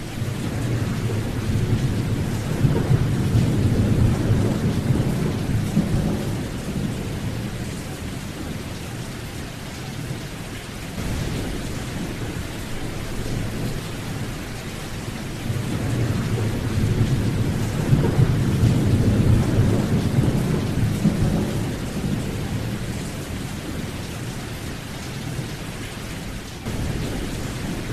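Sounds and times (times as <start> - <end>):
rolling thunder: 0.0 - 8.7, 11.0 - 24.6, 26.6 - 27.9
steady rain: 0.0 - 27.9.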